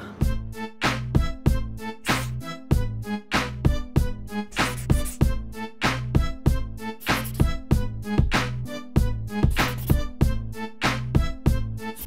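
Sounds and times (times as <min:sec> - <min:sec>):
bass notes: 0:00.2 - 0:11.9
intro music: 0:00.2 - 0:12.0
steady drum beat: 0:01.2 - 0:02.9, 0:03.7 - 0:10.4.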